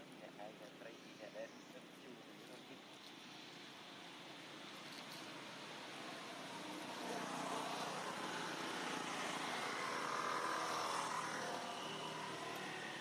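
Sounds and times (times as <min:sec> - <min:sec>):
passing vehicle engine: 0:02.7 - 0:13.0.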